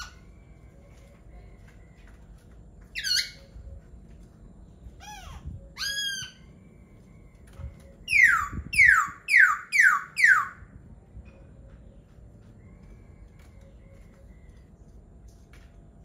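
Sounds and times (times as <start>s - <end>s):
bird singing whistles: 8.0s - 10.6s.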